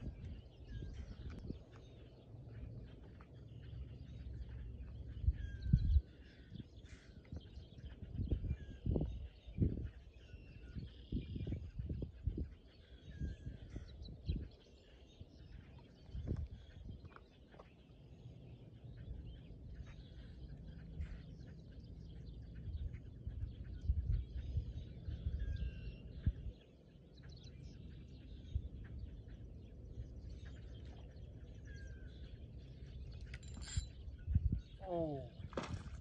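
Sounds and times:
wind rumble on microphone: 0:00.0 - 0:36.0
birds chirping: 0:12.7 - 0:35.9.

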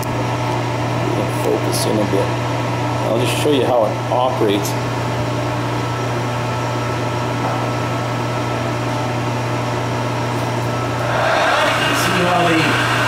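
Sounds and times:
lathe motor humming: 0:10.7 - 0:13.0.

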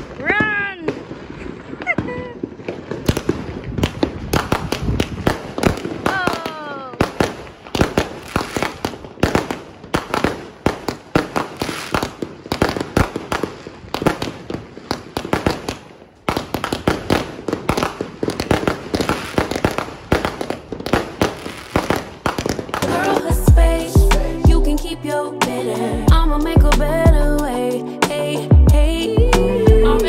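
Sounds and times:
fireworks and firecrackers banging: 0:00.0 - 0:23.4.

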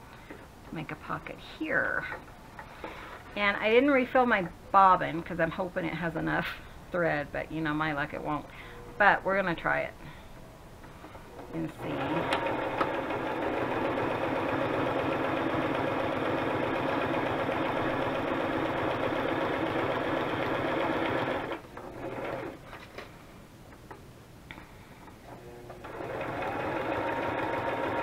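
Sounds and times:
sewing machine running: 0:11.8 - 0:22.6, 0:25.8 - 0:28.0.

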